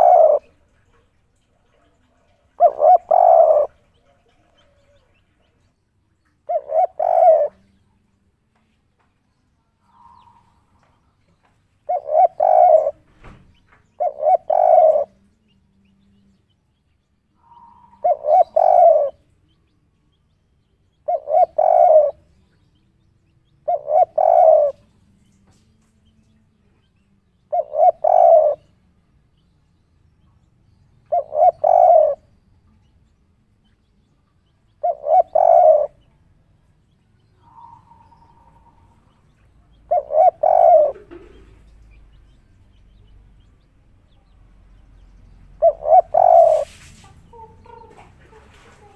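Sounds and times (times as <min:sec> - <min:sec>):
dove cooing: 0:00.0 - 0:05.1, 0:06.4 - 0:07.8, 0:09.8 - 0:10.9, 0:11.9 - 0:15.2, 0:17.4 - 0:19.2, 0:21.0 - 0:22.6, 0:23.6 - 0:24.9, 0:27.5 - 0:28.7, 0:31.1 - 0:32.3, 0:34.8 - 0:36.1, 0:37.4 - 0:42.8, 0:45.6 - 0:48.9.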